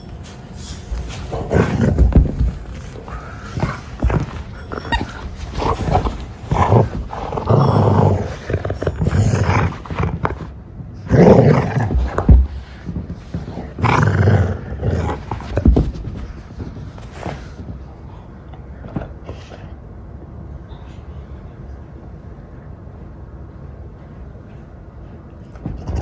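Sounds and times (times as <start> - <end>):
dog growling: 1.0 - 16.2.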